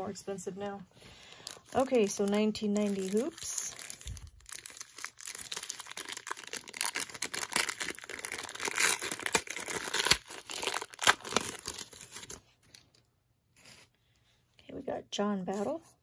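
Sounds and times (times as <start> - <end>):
paper wrapper tearing and crinkling: 1.3 - 12.9.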